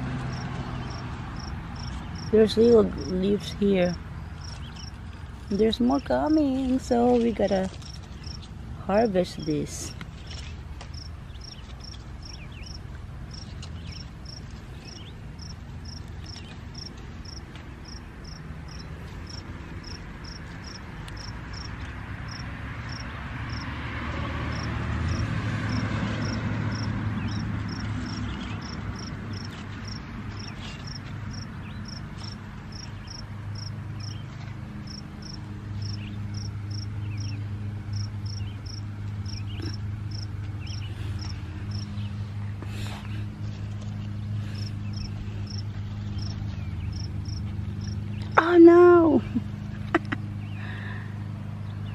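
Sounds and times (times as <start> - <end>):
cricket chirping: 0.3 - 2.3, 4.2 - 5.3, 10.9 - 14.4, 15.4 - 21.7, 22.3 - 23.6, 24.5 - 34.2, 34.9 - 37.3, 37.9 - 41.9, 44.6 - 45.6, 46.2 - 48.0.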